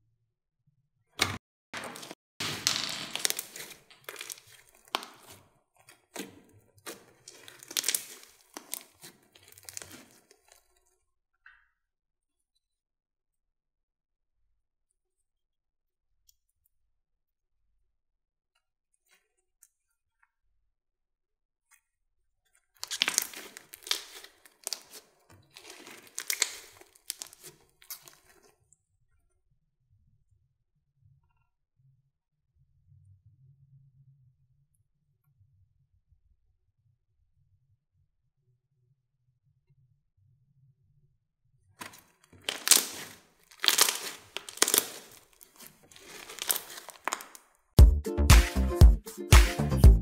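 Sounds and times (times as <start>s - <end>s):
slime crackling and popping: 3.1s - 5.4s, 6.2s - 10.2s, 22.8s - 28.3s, 41.8s - 47.4s.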